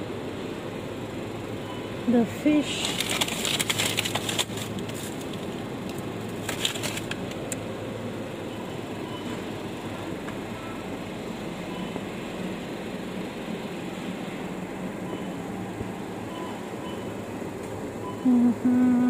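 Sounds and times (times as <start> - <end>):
shopping trolley wheels rumbling: 2.1 - 7.5
trolley clicks and rattles: 2.7 - 7.6.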